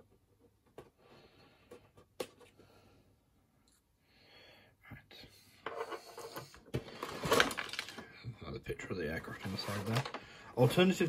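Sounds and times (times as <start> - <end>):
cardboard scraping and rustling: 6.2 - 7.9, 9.4 - 11.0.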